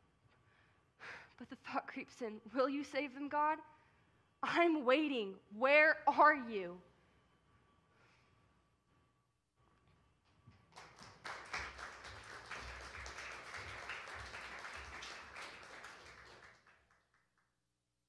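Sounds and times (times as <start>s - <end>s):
audience applauding: 10.7s - 17.4s.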